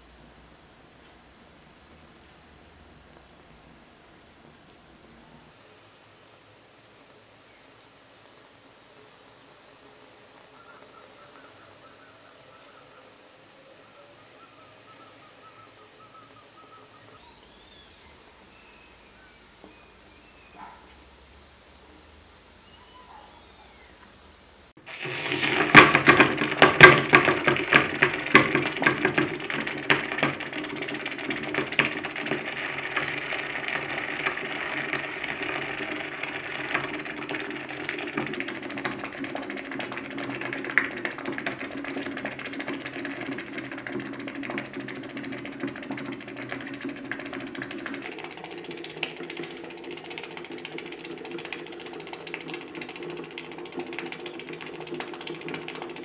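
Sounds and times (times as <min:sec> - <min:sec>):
hot metal ball crackling and sizzling: 0:24.8 - 0:48.5.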